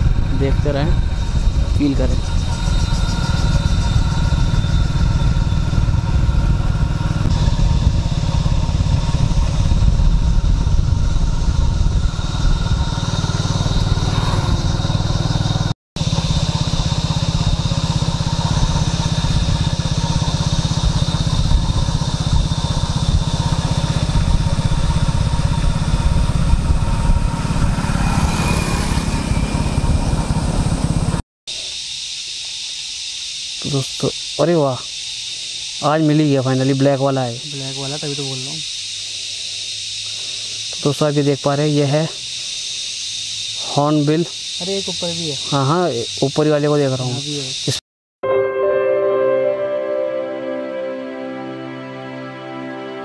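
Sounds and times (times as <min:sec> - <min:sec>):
motorcycle engine rumbling: 0:00.0 - 0:31.2, 0:33.6 - 0:47.8.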